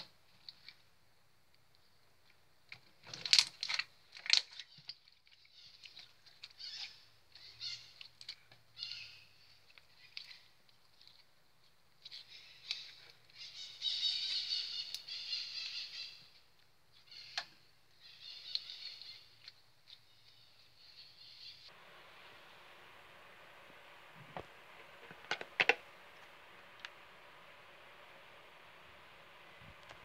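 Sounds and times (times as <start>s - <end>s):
faint steady hiss: 0.0s - 30.0s
slime squelching: 2.8s - 13.5s.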